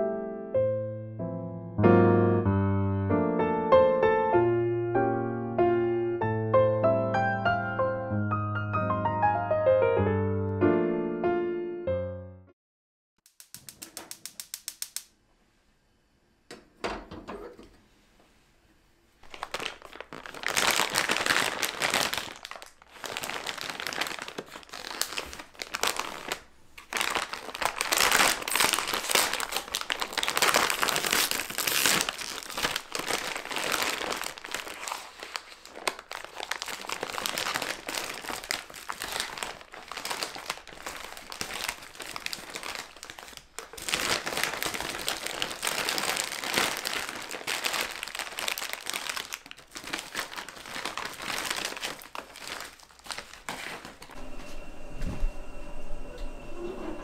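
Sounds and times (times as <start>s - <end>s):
plastic packaging crinkling: 19.2s - 54.2s.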